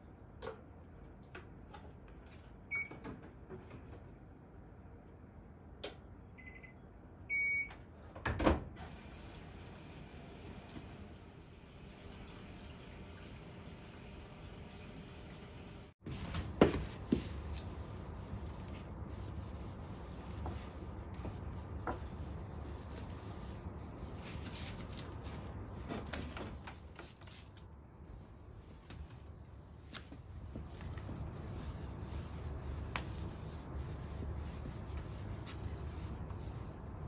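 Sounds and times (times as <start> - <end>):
soft rubbing: 16.0 - 26.1, 28.0 - 37.0.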